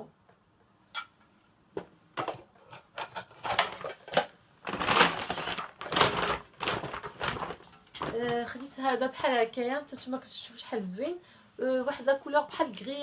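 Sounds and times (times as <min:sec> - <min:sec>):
shopping bag rustling: 0:04.6 - 0:08.4.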